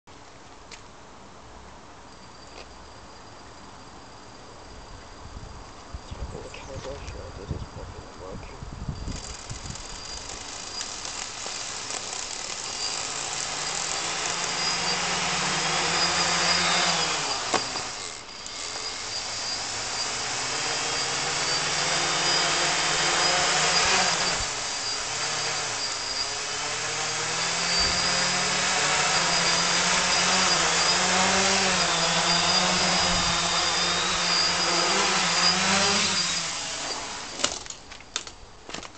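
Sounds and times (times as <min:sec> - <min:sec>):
quadcopter motors whining: 0:08.9 - 0:37.7.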